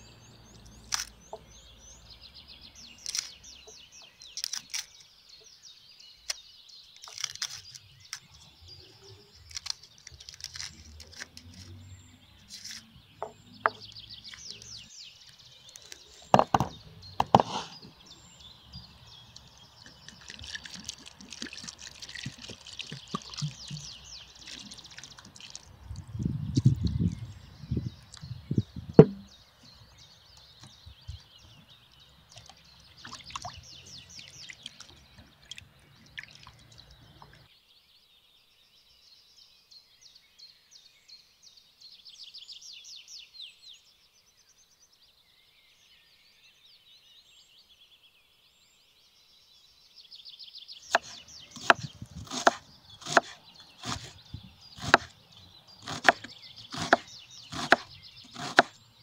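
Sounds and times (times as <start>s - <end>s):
small birds singing: 0.0s - 59.0s
knife chopping on wooden board: 16.3s - 17.7s, 29.0s - 29.3s, 50.9s - 54.2s, 54.8s - 55.1s, 55.8s - 58.7s.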